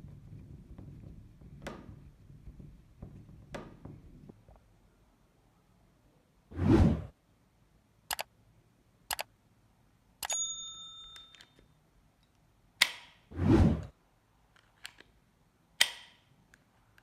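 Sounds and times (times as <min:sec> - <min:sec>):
pistol hammer clicking: 0:15.8 - 0:16.2
pistol hammer snapping: 0:15.8 - 0:16.2.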